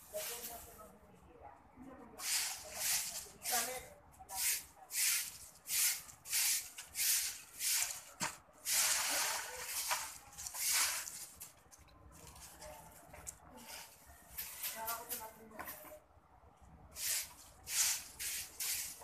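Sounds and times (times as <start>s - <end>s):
broom sweeping a concrete floor: 0.0s - 0.9s, 2.2s - 11.6s, 13.6s - 15.9s, 16.9s - 19.0s.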